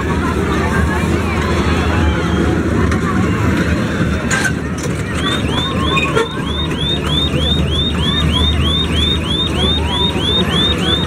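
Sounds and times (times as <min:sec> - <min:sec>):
low fairground rumble: 0:00.0 - 0:11.0
electronic rising chirps: 0:05.2 - 0:11.0.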